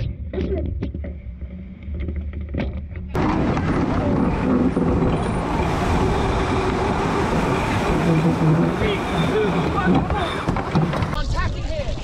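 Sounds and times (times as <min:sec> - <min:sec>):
water streaming past hull: 0:03.4 - 0:11.2.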